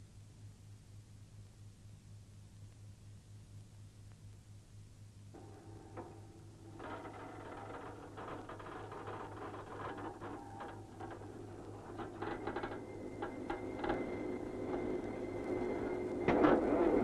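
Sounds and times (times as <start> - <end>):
metallic clanks and knocks: 5.4 - 15.0
construction machinery hum: 5.4 - 17.0.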